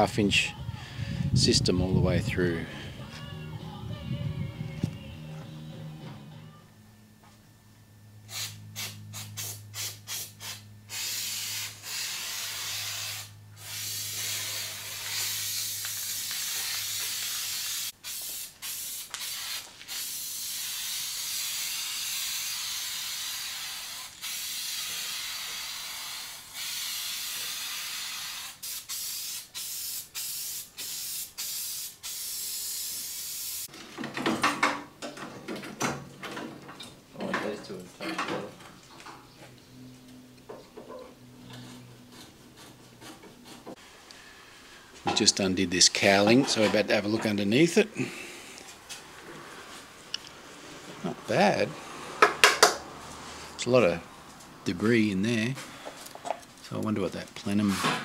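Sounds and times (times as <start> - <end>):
aerosol spray can spraying: 8.3 - 33.7.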